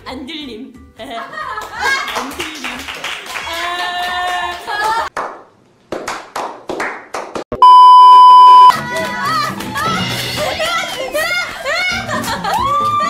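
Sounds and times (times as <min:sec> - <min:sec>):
handclaps: 0:01.6 - 0:07.5
test-tone beep: 0:07.6 - 0:08.7.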